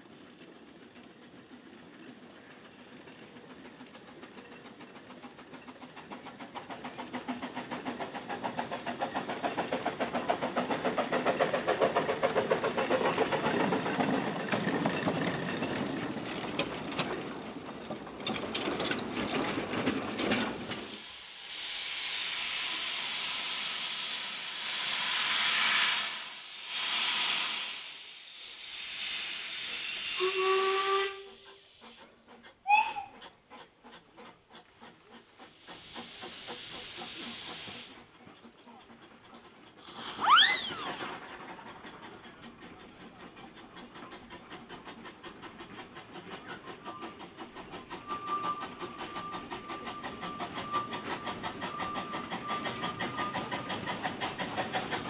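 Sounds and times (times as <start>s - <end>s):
steam locomotive hissing steam: 0.0s - 55.0s
train wheels clattering: 0.0s - 55.0s
steam whistle: 30.1s - 31.6s, 32.7s - 33.1s.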